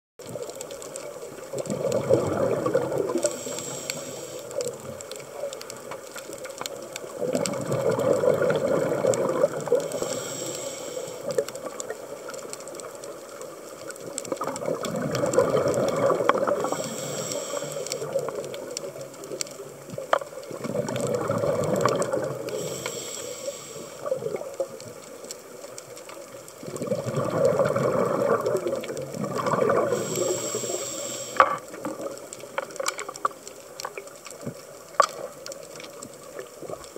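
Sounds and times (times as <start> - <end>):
faint clicks: 0.2 - 36.9
exhaled bubbles rushing: 1.4 - 3.5, 7.1 - 10.1, 14.3 - 17.2, 20.5 - 22.7, 26.6 - 30.7
diver inhaling through regulator: 2.3 - 4.6, 9.7 - 11.4, 16.4 - 18.2, 22.4 - 24.2, 29.6 - 31.7.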